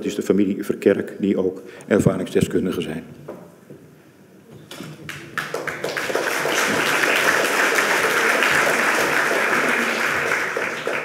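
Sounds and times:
audience applauding: 5.1 - 11.0.

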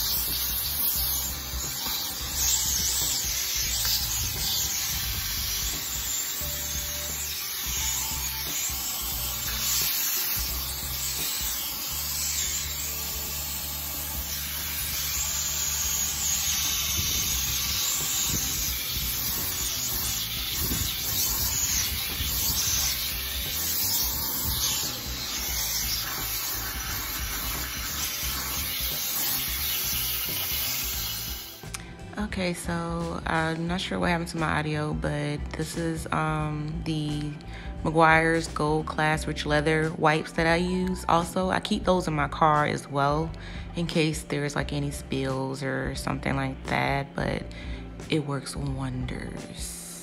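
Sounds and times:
shop vacuum sucking air: 0.0 - 32.5.

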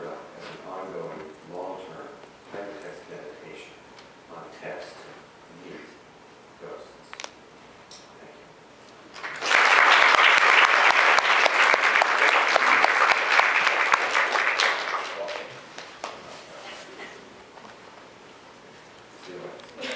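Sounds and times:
audience applauding: 9.1 - 16.2.

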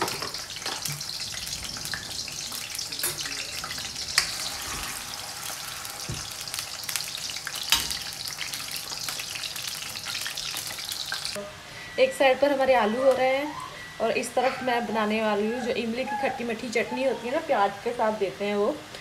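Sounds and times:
potatoes sizzling in hot oil: 0.0 - 11.4.

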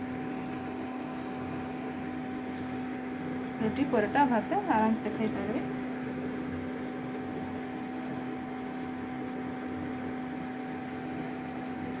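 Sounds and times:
electric hum: 0.0 - 12.0.

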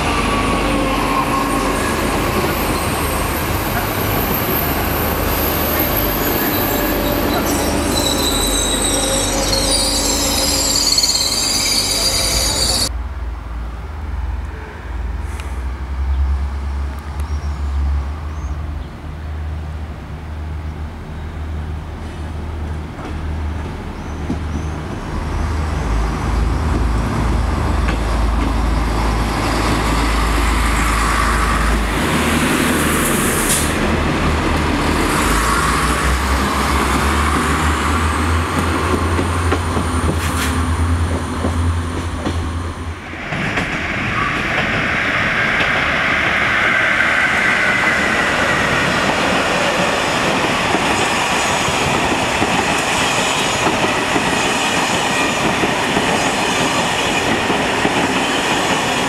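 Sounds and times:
diesel railcar engine hum: 0.0 - 59.0
train passing: 0.0 - 59.0
wheel squeal: 5.4 - 12.9.

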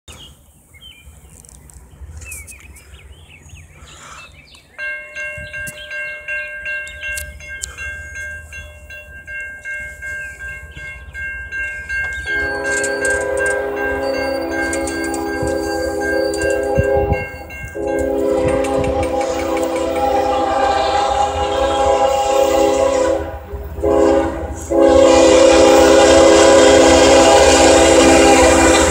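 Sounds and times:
railroad crossing bell ringing: 4.6 - 28.9
locomotive air horn: 12.3 - 28.9.

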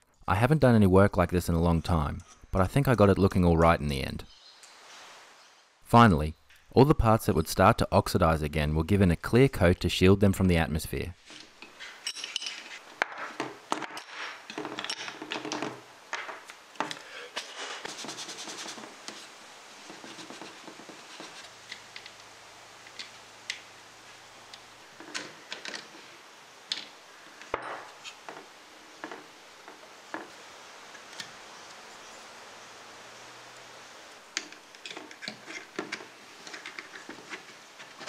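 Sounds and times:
small parts clinking and scraping: 11.2 - 17.0.

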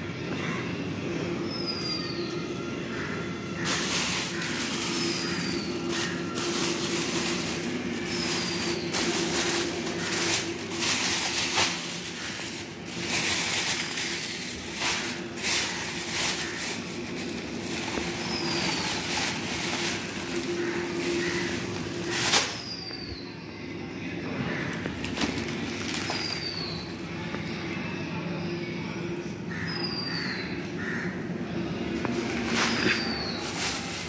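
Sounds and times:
plastic bags crinkling: 3.6 - 22.8, 24.7 - 27.4, 31.9 - 34.0.

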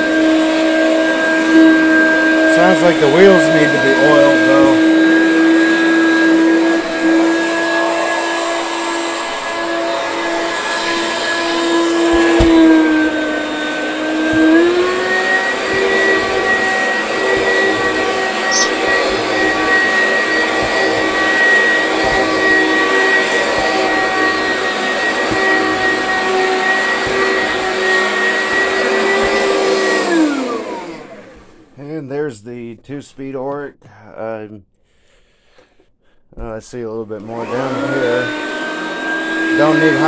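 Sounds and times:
upright vacuum cleaner motor hum: 0.0 - 31.8, 37.2 - 40.0.

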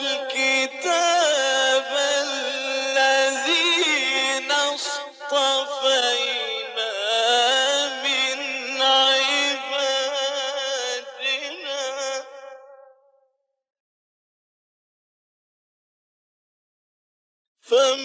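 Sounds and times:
man chanting melodically: 0.0 - 12.9, 17.7 - 18.0.

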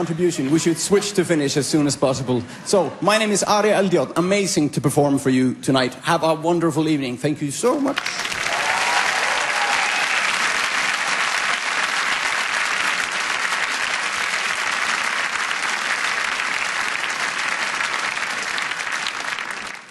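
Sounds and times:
audience applauding: 7.9 - 19.9.

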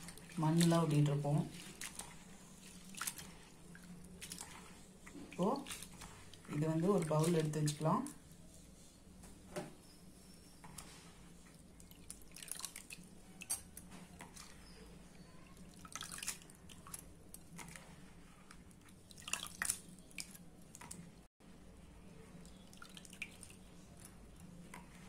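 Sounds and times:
splashes and drips: 0.0 - 8.2, 10.8 - 14.7, 15.5 - 21.2, 22.4 - 25.0
hand swishing rice in water: 0.0 - 9.0, 10.6 - 13.4.

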